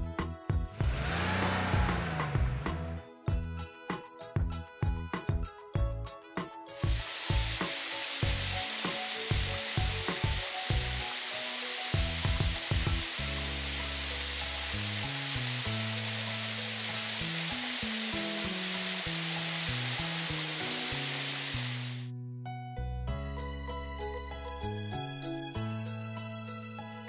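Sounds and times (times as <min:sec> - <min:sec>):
background music: 0:00.0 - 0:27.0
water spray hissing: 0:00.8 - 0:03.0, 0:06.8 - 0:22.1.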